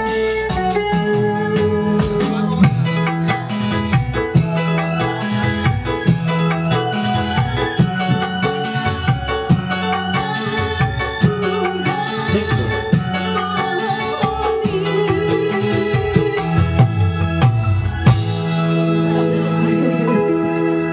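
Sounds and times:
electronic organ chords: 0.0s - 20.9s
woman singing into microphone: 1.1s - 17.4s.

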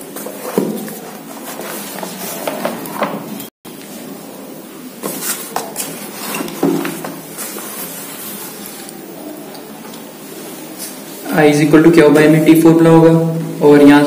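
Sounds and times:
paper pages rustling: 0.0s - 3.5s, 5.0s - 9.0s.

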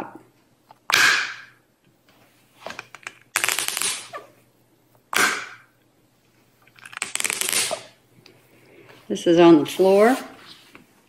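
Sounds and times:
suction cups crackling: 2.7s - 4.3s, 6.6s - 8.0s.

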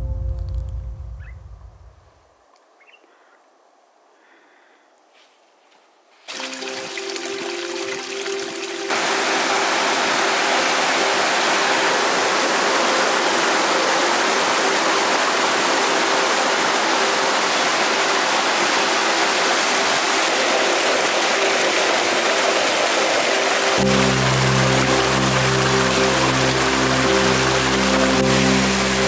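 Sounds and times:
waterfall rushing: 6.3s - 29.0s.

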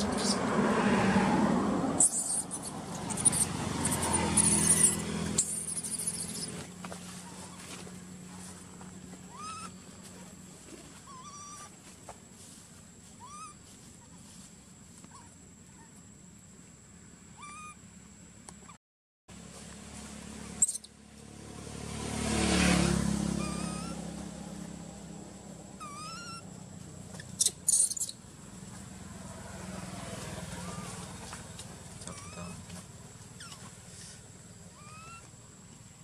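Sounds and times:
baby monkey whimpering calls: 2.0s - 6.6s, 9.3s - 9.8s, 11.0s - 11.7s, 13.2s - 14.2s, 17.4s - 17.8s, 20.4s - 20.9s, 22.8s - 24.1s, 25.8s - 26.5s, 27.2s - 28.2s, 30.6s - 31.1s, 32.0s - 32.7s, 33.4s - 33.7s, 34.7s - 35.3s.

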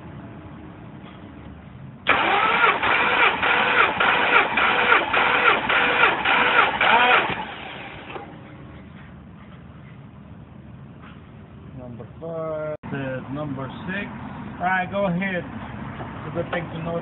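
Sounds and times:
starter motor cranking engine: 2.1s - 8.3s.

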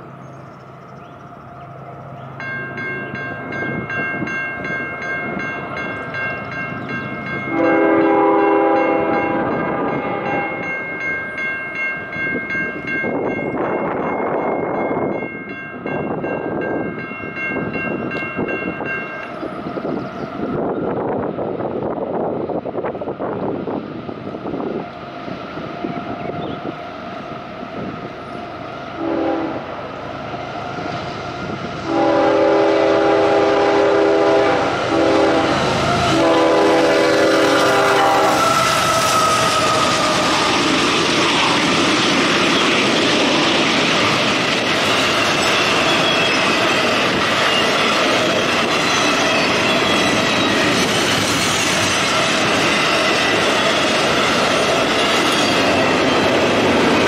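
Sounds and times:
train horn blasts: 7.5s - 10.7s, 27.8s - 40.6s
freight train wheel clatter: 30.7s - 57.0s.

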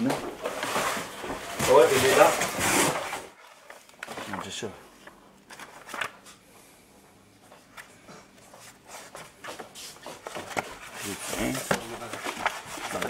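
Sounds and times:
paper pages turning: 1.6s - 6.4s, 8.6s - 13.0s.

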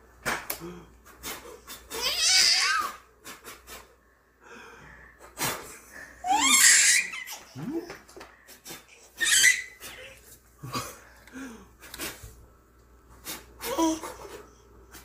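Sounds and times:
man blowing puffs of air: 3.2s - 4.0s
baby laughing and squealing: 6.2s - 7.6s, 9.1s - 10.2s.

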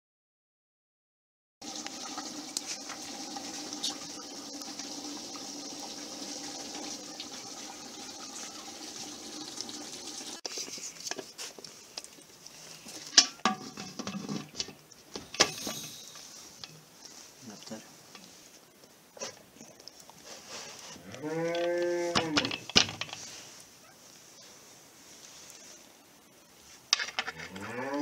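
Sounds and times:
wood fire crackling: 1.6s - 21.6s
pot contents hissing: 1.6s - 27.1s
metal pot lid clattering: 13.1s - 14.8s.

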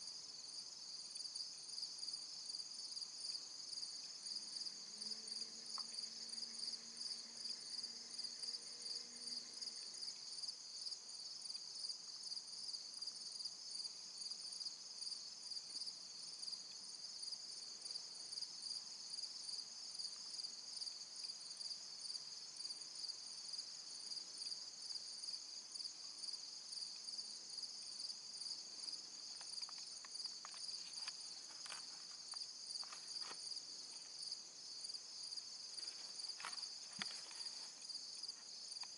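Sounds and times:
insects trilling: 17.8s - 38.9s.

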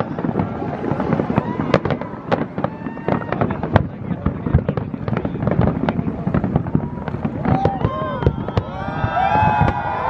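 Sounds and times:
continuous rumble: 0.0s - 8.5s
firework bangs and crackles: 0.0s - 10.0s
firework whistles: 6.5s - 10.0s.

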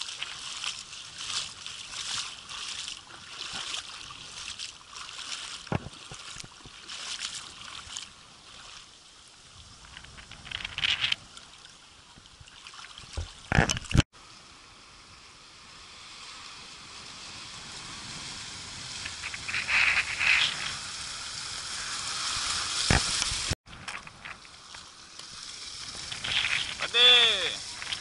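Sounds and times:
seawater sloshing and splashing: 0.0s - 9.0s, 10.4s - 14.0s
small waves hissing: 0.0s - 13.2s, 14.2s - 28.0s.

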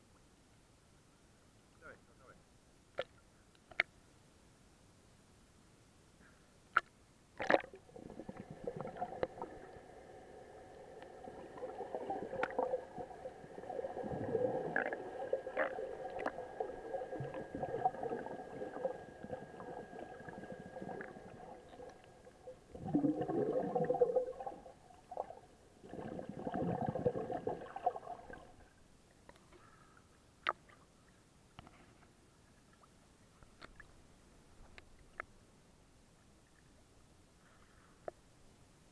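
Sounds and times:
muffled water sloshing and gurgling: 7.4s - 28.8s
steady hum: 7.6s - 28.9s.

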